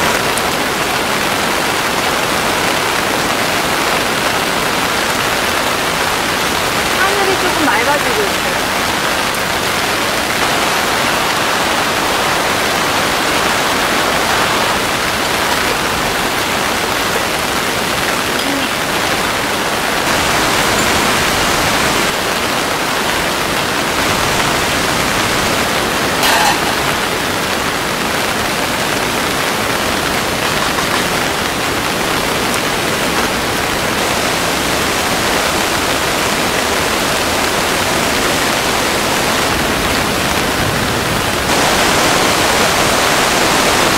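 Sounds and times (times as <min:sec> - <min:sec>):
heavy rain hissing: 0:00.0 - 0:43.9.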